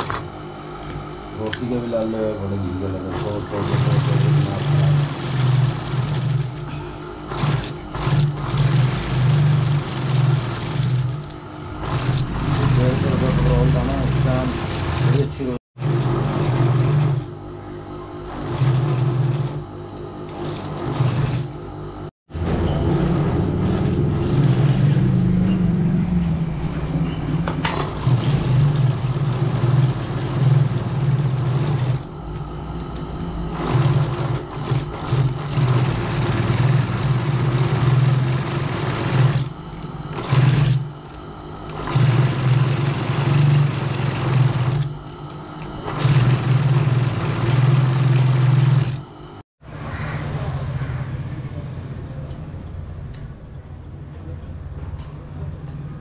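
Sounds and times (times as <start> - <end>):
low machine hum: 0.0 - 56.0
sewing machine stitching leather: 2.8 - 17.3, 18.2 - 19.7, 20.3 - 21.6, 22.4 - 25.7, 27.6 - 32.1, 33.4 - 45.1, 45.8 - 49.1.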